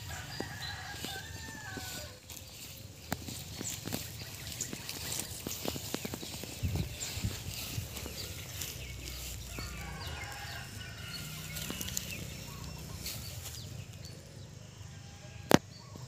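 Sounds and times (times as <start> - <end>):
chickens clucking: 0.0 - 14.6
faint outdoor ambience: 0.0 - 16.0.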